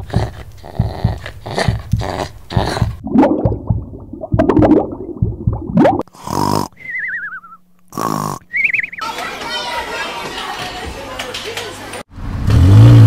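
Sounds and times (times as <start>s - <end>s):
cartoon snoring: 0.0s - 3.0s, 6.1s - 6.9s, 7.9s - 8.5s.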